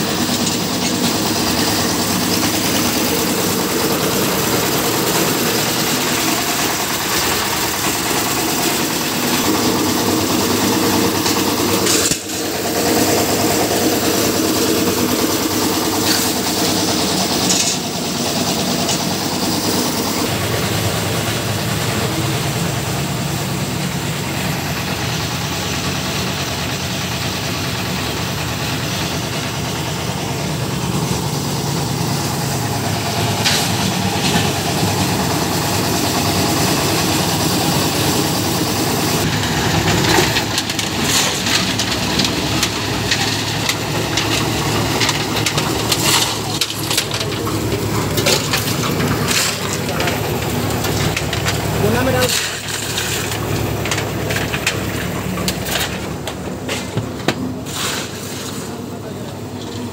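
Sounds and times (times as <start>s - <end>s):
concrete mixer engine running: 0.0s - 59.9s.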